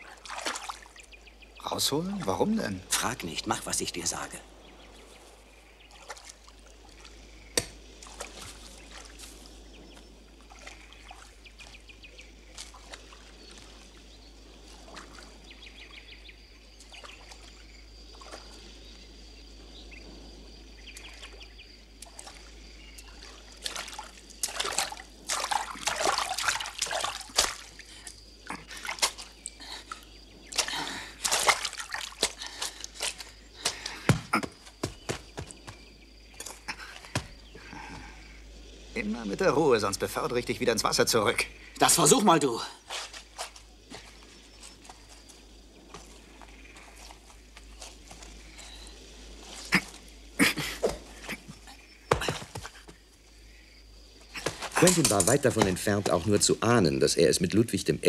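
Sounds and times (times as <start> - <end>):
water splashing and sloshing: 0.0 - 57.6.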